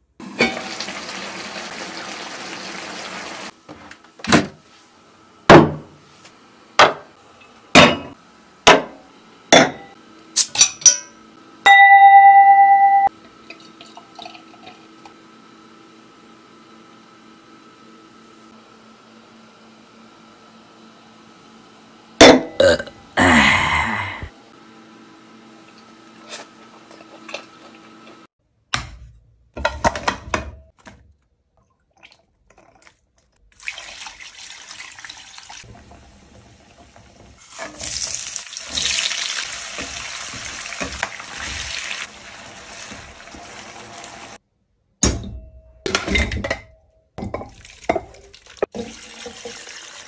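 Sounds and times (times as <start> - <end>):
spices sizzling in hot oil: 0.2 - 3.5, 33.9 - 44.4, 47.8 - 50.0
cookware knocking and clattering: 45.1 - 48.1.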